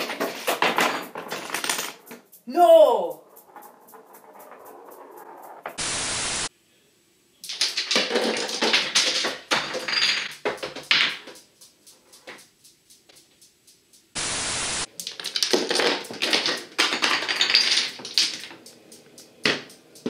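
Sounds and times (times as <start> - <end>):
wooden pieces clattering and toppling: 0.0 - 2.2, 7.4 - 11.4, 14.9 - 18.7
dominoes falling: 0.0 - 5.9, 7.4 - 12.5, 14.8 - 20.0
static hiss burst: 5.7 - 6.5, 14.1 - 15.0.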